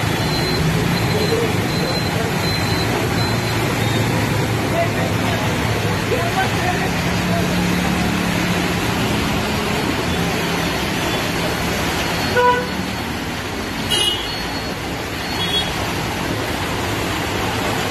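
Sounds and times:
rushing street noise: 0.0 - 17.9
vehicle horn toot: 12.3 - 12.7, 13.9 - 14.3.

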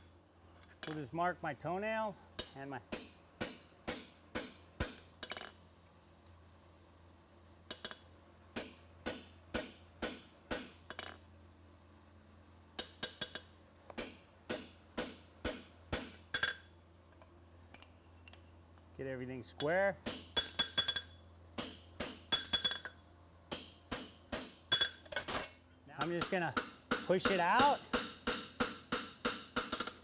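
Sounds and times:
hammer striking metal punch: 26.0 - 30.0.

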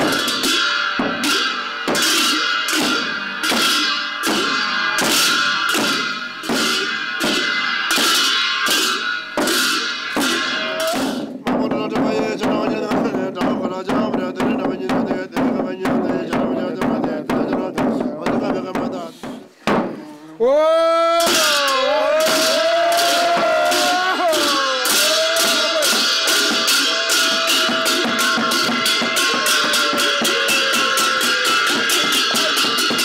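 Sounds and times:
large cymbals ringing: 0.0 - 11.5, 21.2 - 33.0
frame drum beat: 0.0 - 20.0, 21.2 - 33.0.

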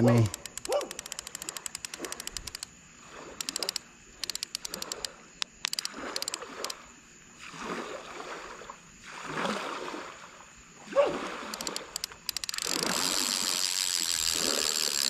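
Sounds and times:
fishing reel drag clicking: 0.0 - 6.8, 11.4 - 15.0.

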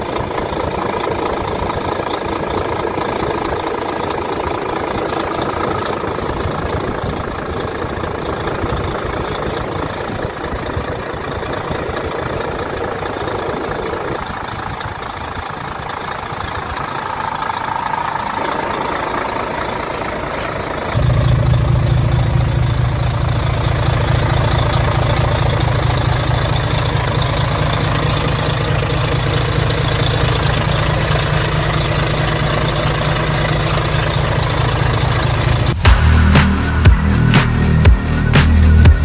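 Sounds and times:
diesel engine idling: 0.0 - 39.0.

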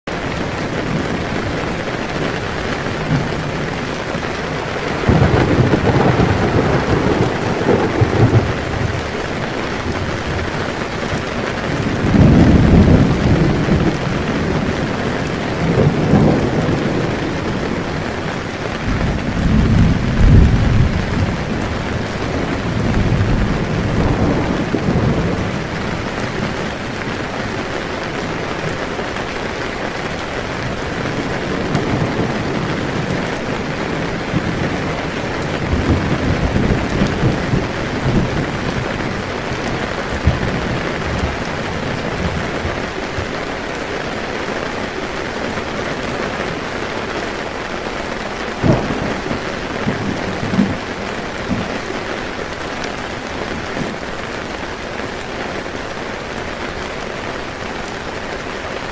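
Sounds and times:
heavy rain on a tent: 0.0 - 58.9
rolling thunder rumble: 0.2 - 27.7, 30.4 - 43.7, 48.5 - 54.6
sharp thunderclaps: 4.7 - 10.5, 11.7 - 14.8, 15.6 - 17.9, 18.8 - 26.6, 31.4 - 43.3, 48.6 - 51.9.

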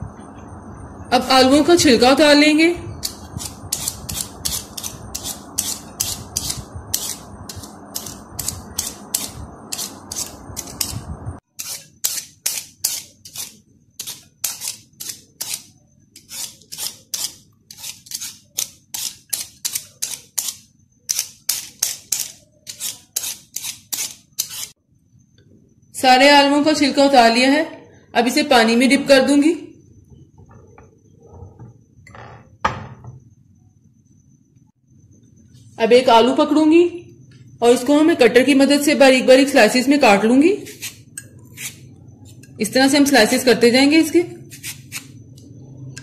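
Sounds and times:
peeler scraping potato skin: 3.0 - 24.7, 40.6 - 42.5, 44.4 - 45.2.

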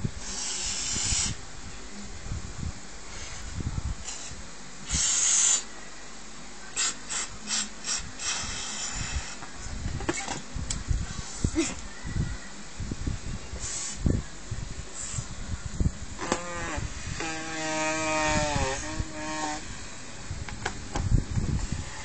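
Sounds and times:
puffs of breath into balloon: 0.2 - 1.4, 3.1 - 5.7, 6.8 - 9.4, 11.0 - 11.6, 13.6 - 14.1, 14.9 - 15.3.

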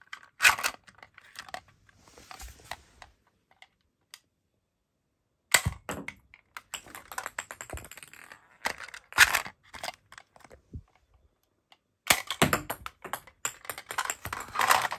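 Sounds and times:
plastic toy gun clicking and rattling: 0.0 - 1.6, 5.5 - 10.6, 11.7 - 14.9.

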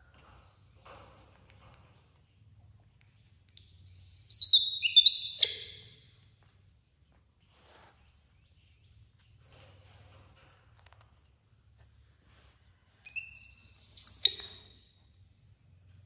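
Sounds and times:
baby monkey squealing: 3.6 - 5.9, 13.1 - 14.6.

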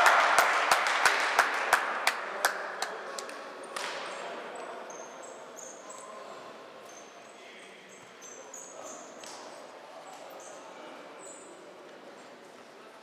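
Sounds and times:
sharp knocks echoing in hall: 0.0 - 4.6
faint hall noise: 0.0 - 13.0.

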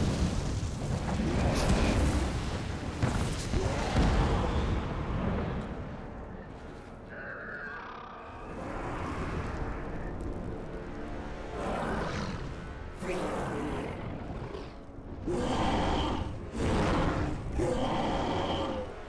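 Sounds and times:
deep rumble of huge fire: 0.0 - 19.0
film music: 0.0 - 19.0
giant ape growling: 11.6 - 19.0.

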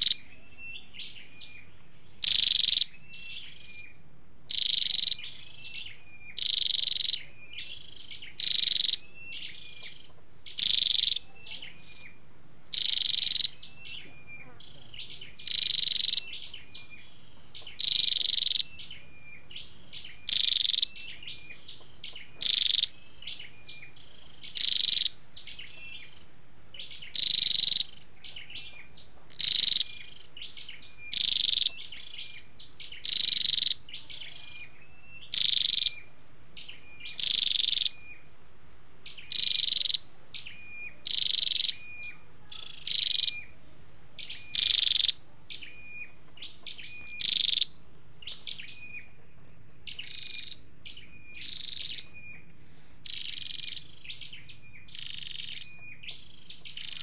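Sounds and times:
bird calling sharply: 0.0 - 17.0, 17.6 - 19.1, 26.8 - 38.3, 39.1 - 43.6, 44.2 - 49.1
soft short bird chirps: 0.0 - 26.2, 26.8 - 38.3, 39.1 - 43.6, 44.2 - 57.0.

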